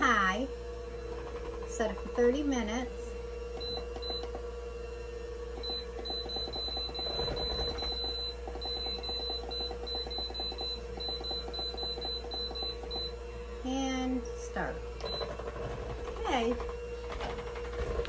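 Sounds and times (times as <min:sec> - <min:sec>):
pressure cooker panel beeping: 0:05.6 - 0:13.2.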